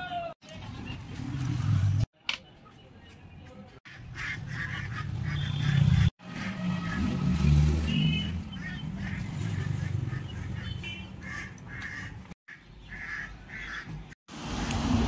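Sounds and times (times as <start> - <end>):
vehicle engines rumbling: 0.4 - 2.1, 2.7 - 12.4.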